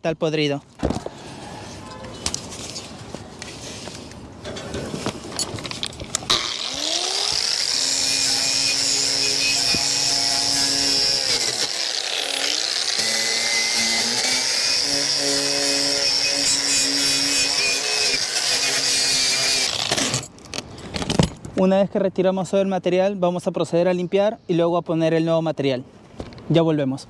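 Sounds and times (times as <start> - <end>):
angle grinder wire brush on metal: 6.3 - 20.3.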